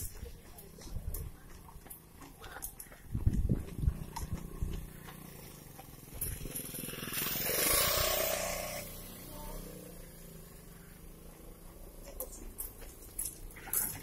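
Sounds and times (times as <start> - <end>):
motorcycle passing by: 3.1 - 14.0.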